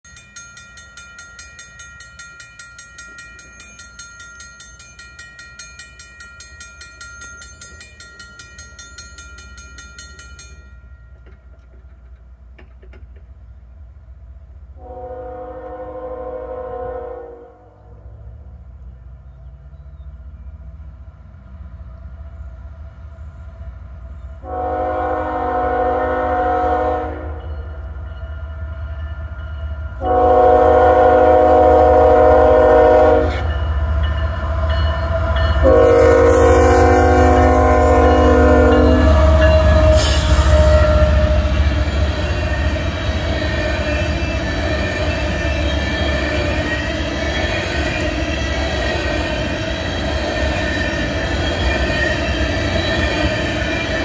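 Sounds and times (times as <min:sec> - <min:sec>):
train wheels on rails: 0:00.0 - 0:17.1, 0:18.0 - 0:54.0
locomotive air horn blasts: 0:14.8 - 0:17.8, 0:24.4 - 0:27.5, 0:30.0 - 0:33.5, 0:35.6 - 0:41.8.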